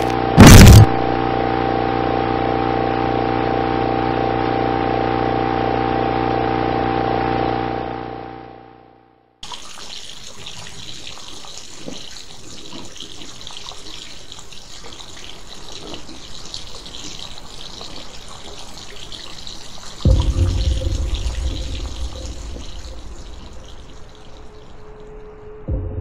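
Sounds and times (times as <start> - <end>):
droning tone: 0.0 - 9.1, 19.2 - 26.0
running water hissing: 9.4 - 25.6.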